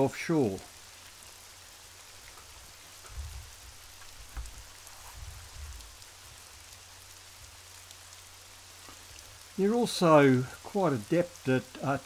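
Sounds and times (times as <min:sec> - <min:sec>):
low dull thumps: 0:03.0 - 0:06.0.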